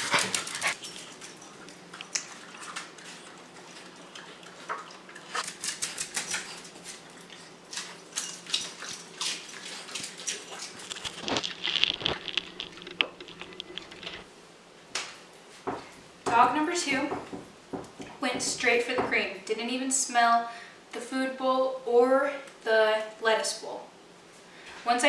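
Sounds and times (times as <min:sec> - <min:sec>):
dog licking and chewing: 0:00.0 - 0:14.2.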